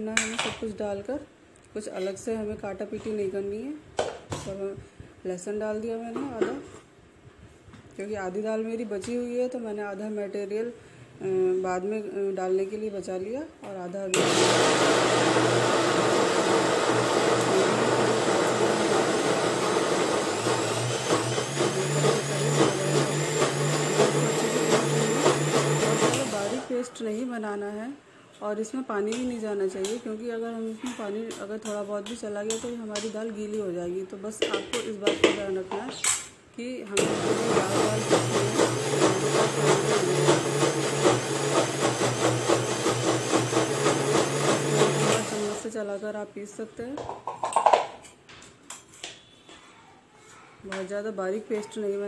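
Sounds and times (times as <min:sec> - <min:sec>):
electric mixer grinder motor whine: 0:14.2 - 0:26.7, 0:37.0 - 0:45.6.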